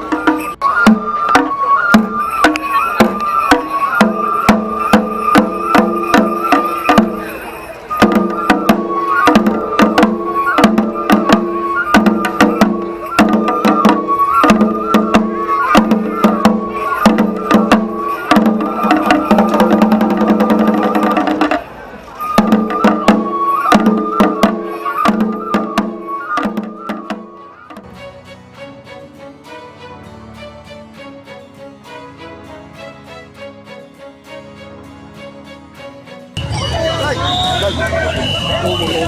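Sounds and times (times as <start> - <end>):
taiko drum beating rhythm: 0.0 - 27.9.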